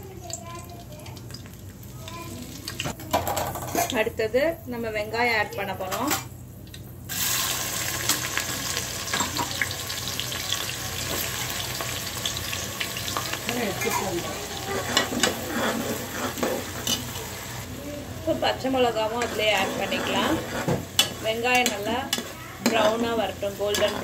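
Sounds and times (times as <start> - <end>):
onions sizzling in hot oil: 0.0 - 3.0, 5.2 - 24.0
metal spatula scraping a pot: 13.7 - 17.2, 19.0 - 24.0.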